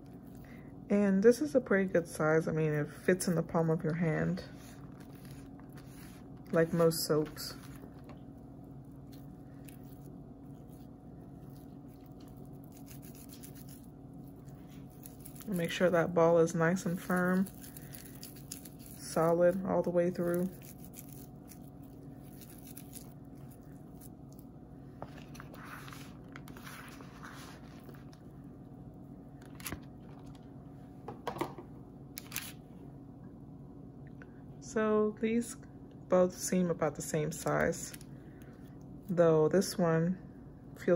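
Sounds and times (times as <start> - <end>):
low steady hum: 0.0 - 40.9
soap crumbs rubbing between palms: 4.5 - 8.0, 8.8 - 28.1.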